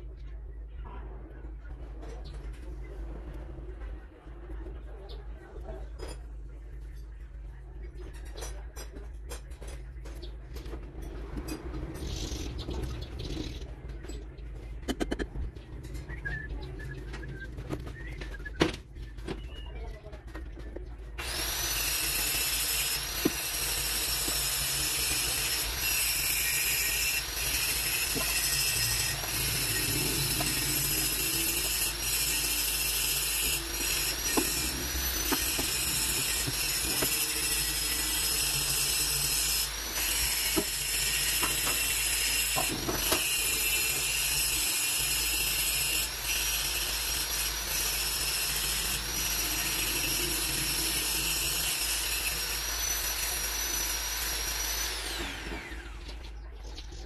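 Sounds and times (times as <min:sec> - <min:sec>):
small electric motor whining: 0:21.2 - 0:56.3.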